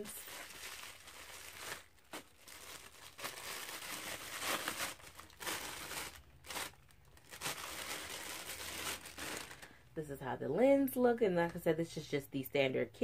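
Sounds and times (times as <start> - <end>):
plastic packaging crinkling: 0.0 - 9.9.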